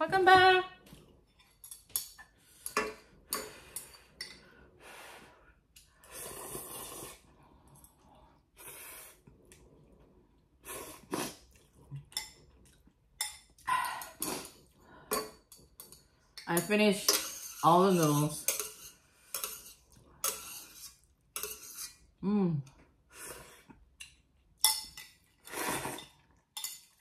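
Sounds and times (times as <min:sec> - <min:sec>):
person slurping noodles: 0:06.0 - 0:07.4, 0:10.6 - 0:11.8, 0:14.0 - 0:14.8, 0:25.4 - 0:26.2.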